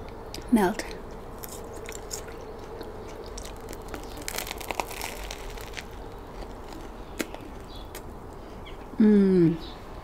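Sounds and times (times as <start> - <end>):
bread crust crunching while chewed: 0.4 - 8.2.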